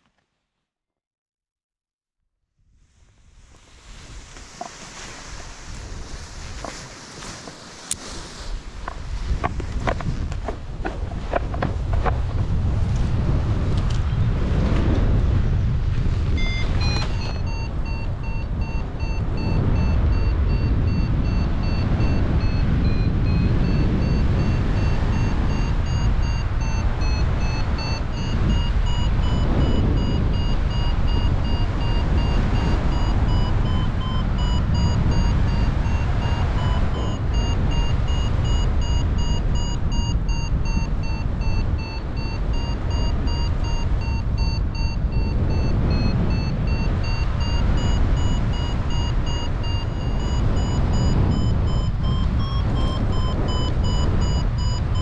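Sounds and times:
wind buffeting microphone: 0:03.2 - 0:55.0
variometer short beeps: 0:16.3 - 0:55.0.

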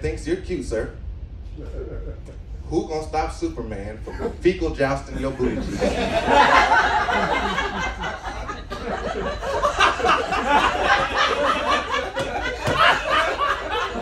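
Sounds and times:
audience laughing: 0:05.1 - 0:14.0.

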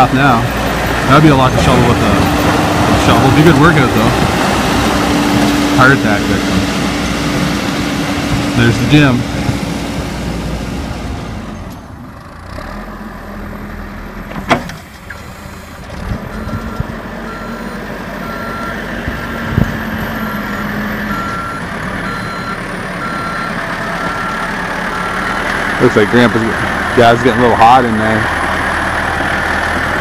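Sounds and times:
diesel engine running: 0:00.0 - 0:30.0
reverse alarm beeping: 0:16.4 - 0:24.5.

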